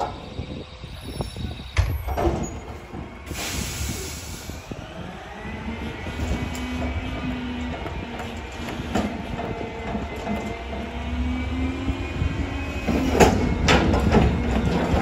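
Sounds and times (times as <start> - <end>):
truck hydraulics whining: 0.0 - 15.0
dumpster clank: 1.7 - 3.7, 12.8 - 15.0
air hiss: 3.3 - 4.7.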